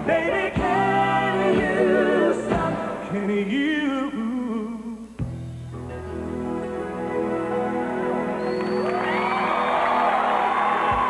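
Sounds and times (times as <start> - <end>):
man singing wordless ad-lib: 0.0 - 5.3
band playing ballad: 0.0 - 11.0.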